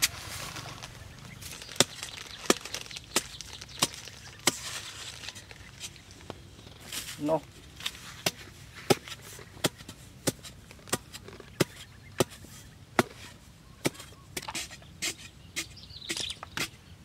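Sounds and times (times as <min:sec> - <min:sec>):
digging tool striking hard earth: 0:00.0 - 0:00.9, 0:01.6 - 0:04.8, 0:06.9 - 0:12.4, 0:13.0 - 0:16.8.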